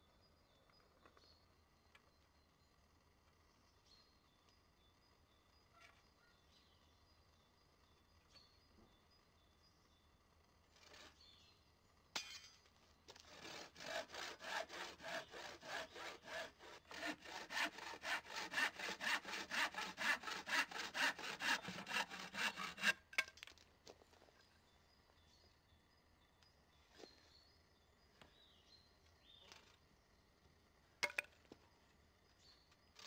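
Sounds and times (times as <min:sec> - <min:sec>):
handsaw cutting wood: 0:10.8 - 0:11.2, 0:13.2 - 0:23.0.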